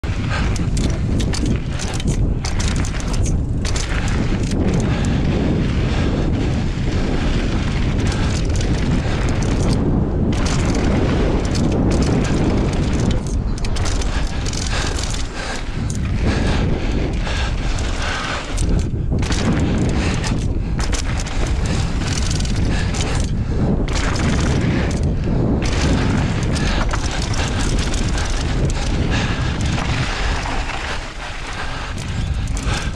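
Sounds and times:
bike rattling with clicks and knocks: 0.0 - 32.9
wind rumbling on microphone: 0.0 - 32.9
tyres crunching over gravel: 25.6 - 32.9.

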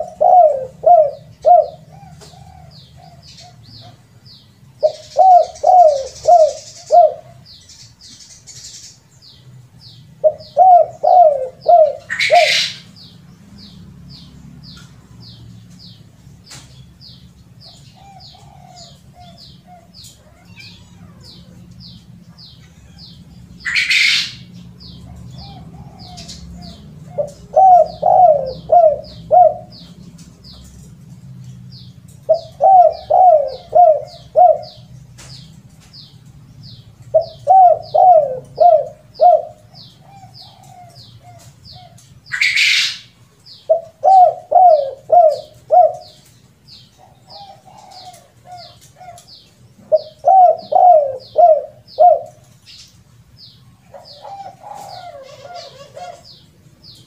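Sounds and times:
dove cooing: 0.0 - 7.6, 10.1 - 13.1, 17.6 - 30.8, 32.2 - 35.4, 37.1 - 46.3, 46.9 - 52.7, 53.8 - 57.0.

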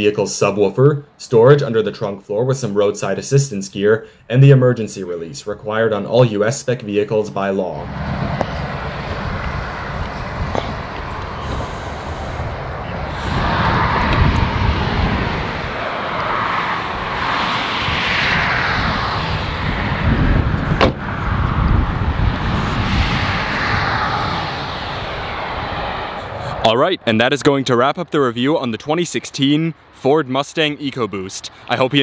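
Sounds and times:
wind buffeting microphone: 7.8 - 26.7
car trunk lid shutting: 20.7 - 21.0.

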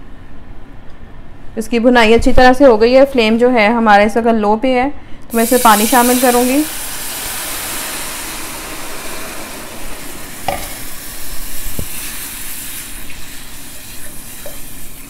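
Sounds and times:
water sizzling in hot fat: 5.3 - 15.0.

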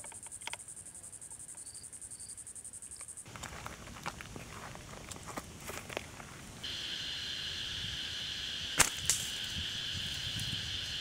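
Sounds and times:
high-pitched insect drone: 6.6 - 11.0
sharp cracks: 8.7 - 9.6.

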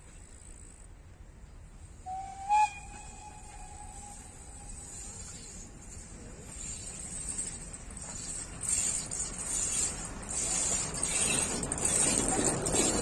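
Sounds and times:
steam whistle blast: 2.0 - 5.1.

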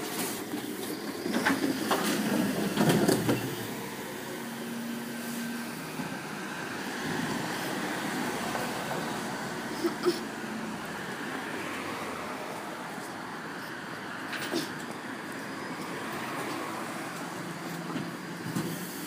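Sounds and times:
refuse lorry running: 0.0 - 19.0.

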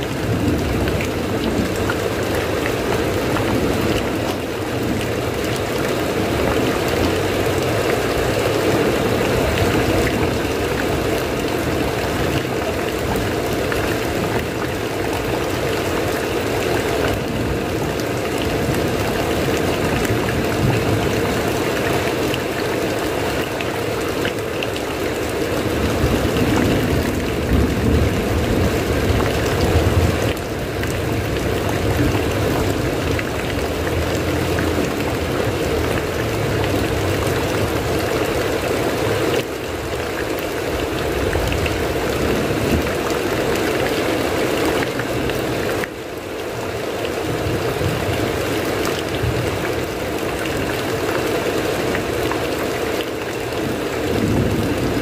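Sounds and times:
rain on a roof: 0.0 - 55.0.

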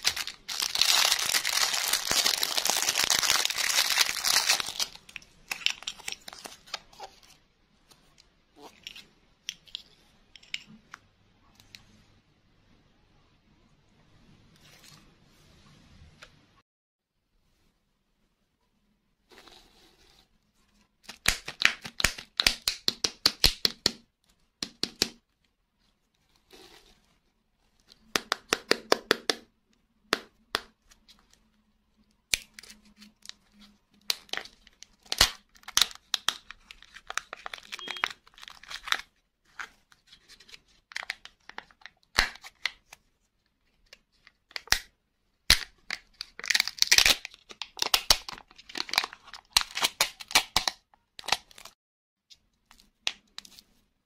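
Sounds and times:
foil wrapper crinkling and tearing: 0.0 - 6.8, 34.1 - 39.1, 45.5 - 51.8.

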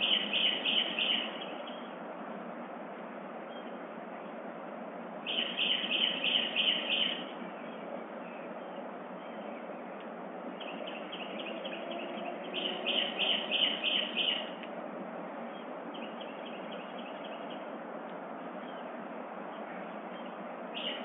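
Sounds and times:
small bird chirping: 0.0 - 1.9, 5.3 - 9.7, 10.6 - 14.6, 19.6 - 21.0
background hiss: 0.0 - 21.0.

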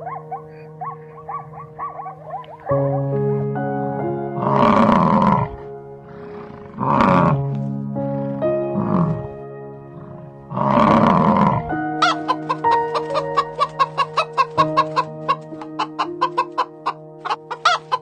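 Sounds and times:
hens clucking: 0.0 - 2.8, 10.8 - 18.0
background music with held notes: 0.0 - 18.0
buffalo grunting: 4.4 - 11.8.

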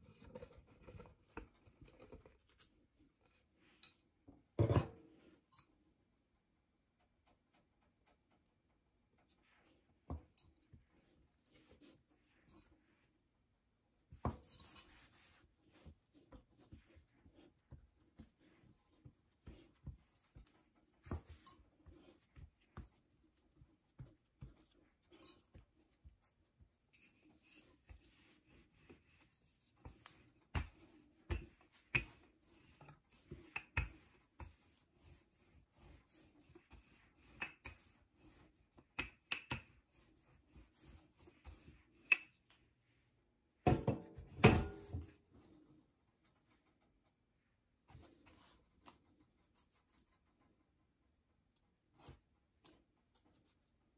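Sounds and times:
rolling pin rolling dough: 14.0 - 42.7
hands patting dough: 14.1 - 42.6.

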